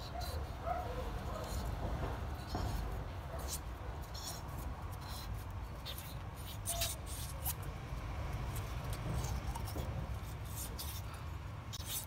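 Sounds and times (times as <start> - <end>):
scraping and rubbing on metal: 8.4 - 12.0.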